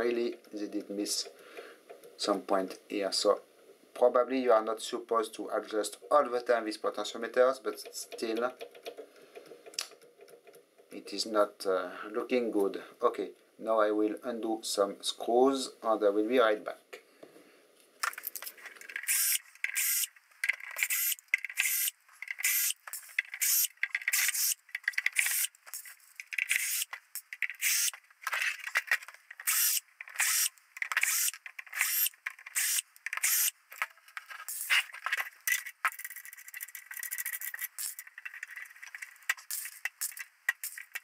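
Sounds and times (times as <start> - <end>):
screwdriver scraping strokes: 18.9 - 20.1, 20.8 - 33.5, 34.4 - 41.0.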